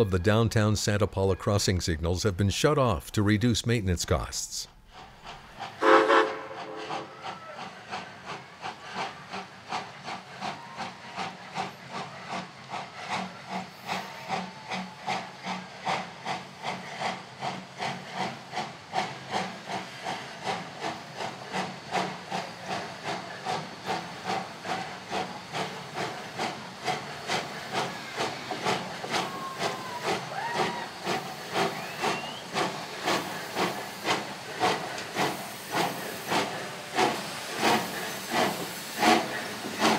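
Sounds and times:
steam locomotive chuffing: 0:04.8 - 0:39.9
hiss of steam: 0:04.9 - 0:39.9.

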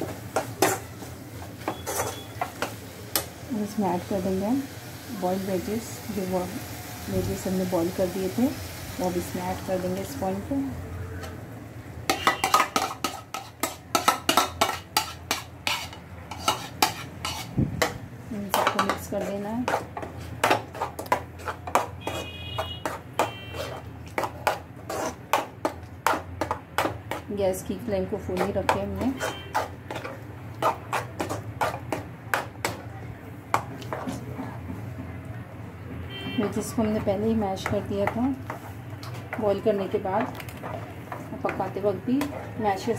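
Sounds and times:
spoon scraping a cooking pan: 0:00.0 - 0:03.3, 0:12.1 - 0:32.8, 0:33.5 - 0:34.3, 0:36.4 - 0:42.9.

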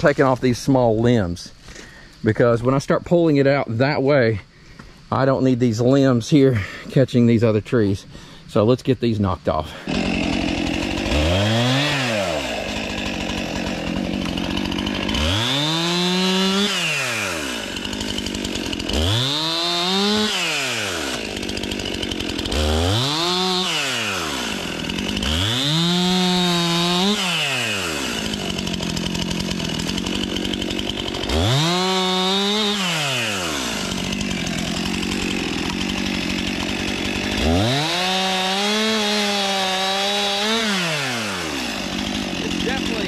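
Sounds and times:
chainsaw idling and revving: 0:09.5 - 0:43.0.

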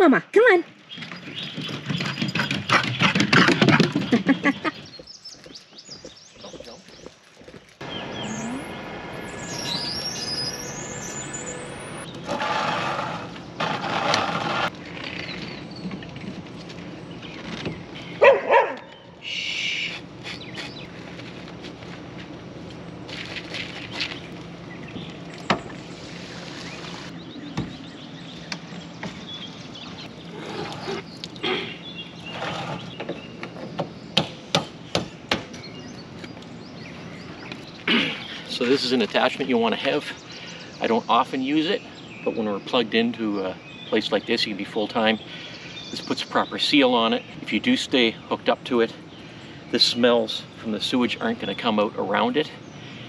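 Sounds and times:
birds chirping: 0:00.0 - 0:13.9, 0:15.0 - 0:21.0, 0:22.7 - 0:53.0
dog barking: 0:18.2 - 0:19.0
hose rustling and scraping: 0:30.3 - 0:31.6.

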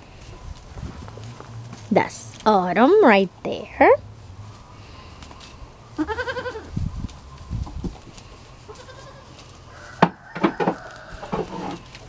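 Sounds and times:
goat bleating: 0:06.0 - 0:06.7, 0:08.7 - 0:09.4.

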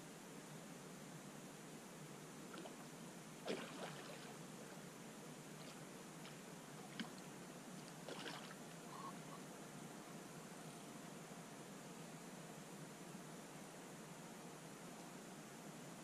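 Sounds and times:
small splashes on pond: 0:02.5 - 0:04.4, 0:05.6 - 0:08.8.

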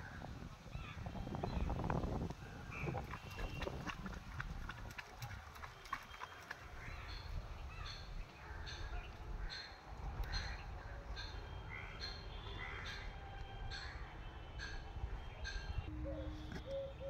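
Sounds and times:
birds calling: 0:05.6 - 0:17.0.

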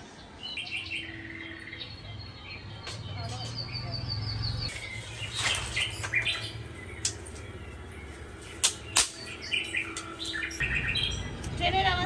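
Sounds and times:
birds chirping: 0:00.0 - 0:12.0
dry sticks rustling: 0:04.7 - 0:10.6
sticks snapping: 0:08.5 - 0:10.4.

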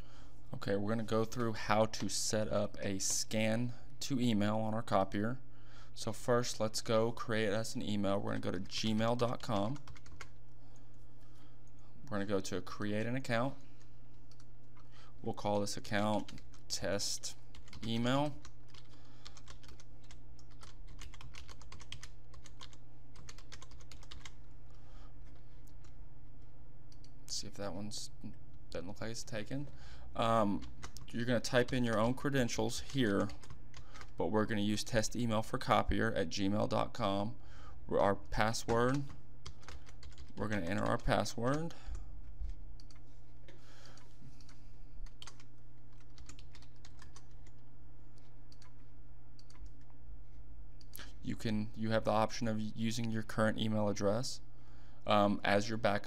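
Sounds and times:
steady low hum: 0:00.0 - 0:56.0
computer keyboard typing: 0:08.2 - 0:10.4, 0:14.3 - 0:14.9, 0:15.5 - 0:16.6, 0:17.2 - 0:24.4, 0:30.5 - 0:34.2, 0:38.5 - 0:43.0, 0:44.4 - 0:47.6, 0:48.2 - 0:48.8, 0:49.4 - 0:49.9.

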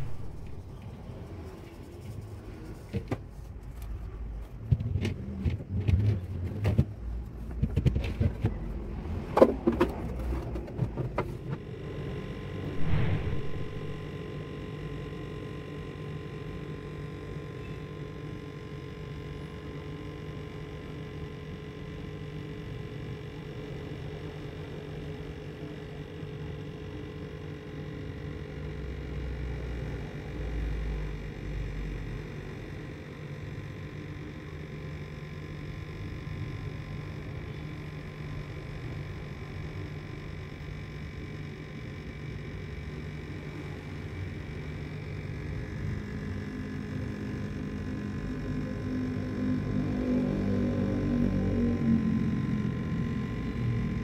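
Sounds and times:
low rumble: 0:00.0 - 0:01.0, 0:12.7 - 0:14.2
electrical hum: 0:00.0 - 0:54.0.

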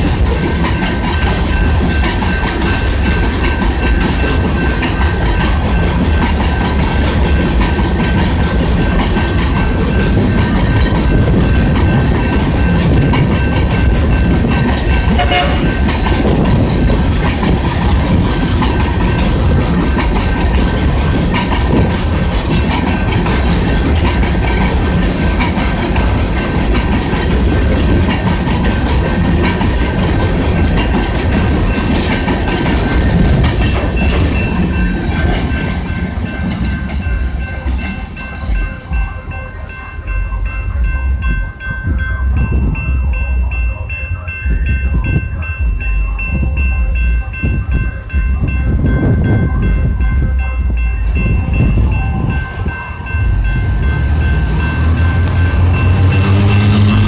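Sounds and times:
train wheels clicking over rail joints: 0:00.0 - 0:39.1, 0:52.4 - 0:57.0
freight train cars rolling on rails: 0:00.0 - 0:57.0
railroad crossing bell ringing: 0:00.0 - 0:57.0.

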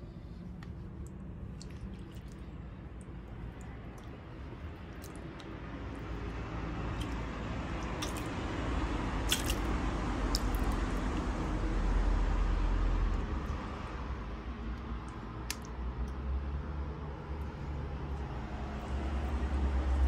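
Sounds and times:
sharp wet clicks: 0:00.6 - 0:11.5, 0:13.0 - 0:16.3
boots squelching in mud: 0:04.8 - 0:08.4, 0:09.2 - 0:11.2.

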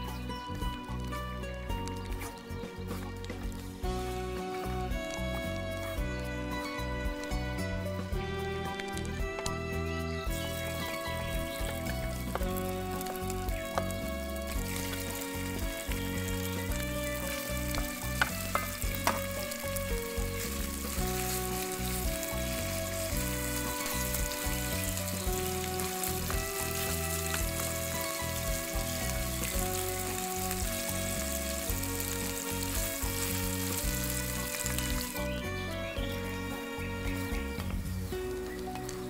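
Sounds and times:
background music: 0:00.0 - 0:39.0
meat sizzling in oil: 0:10.2 - 0:39.0.

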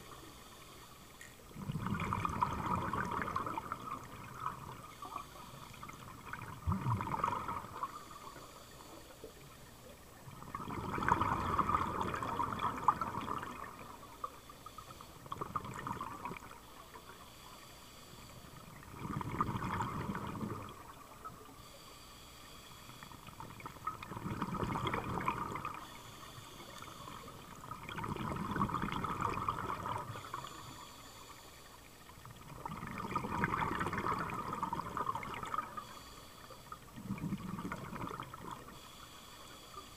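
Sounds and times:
breathing through a regulator: 0:00.0 - 0:39.9
diver exhaling bubbles underwater: 0:01.6 - 0:08.2, 0:10.3 - 0:14.2, 0:15.3 - 0:16.6, 0:18.6 - 0:21.2, 0:23.3 - 0:26.0, 0:26.8 - 0:30.7, 0:32.2 - 0:36.0, 0:36.9 - 0:38.8.

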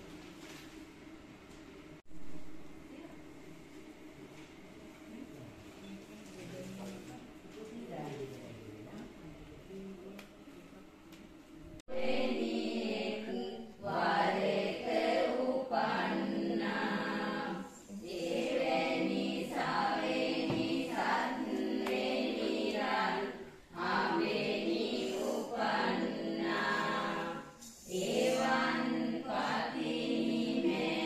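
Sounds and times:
group chanting in unison: 0:11.8 - 0:31.0.

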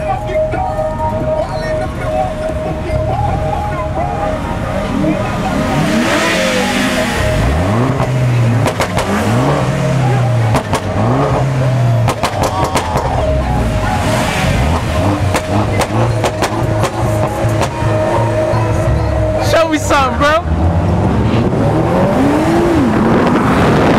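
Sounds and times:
car engines revving: 0:00.0 - 0:23.9
crowd voices: 0:00.0 - 0:23.9
sharp pops: 0:12.0 - 0:13.0, 0:15.3 - 0:17.0.

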